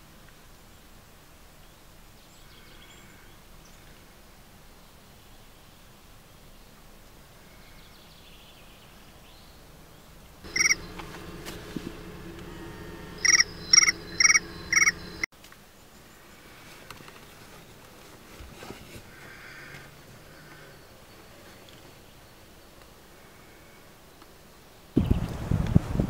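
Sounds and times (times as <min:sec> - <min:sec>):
low steady hum: 0:10.4 - 0:15.3.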